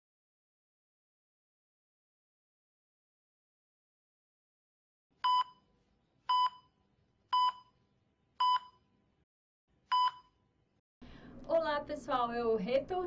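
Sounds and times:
electronic countdown beeps: 0:07.4 - 0:07.8.

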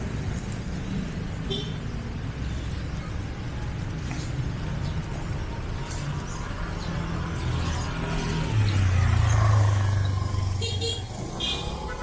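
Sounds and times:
vehicle engine passing: 0:06.1 - 0:12.0.

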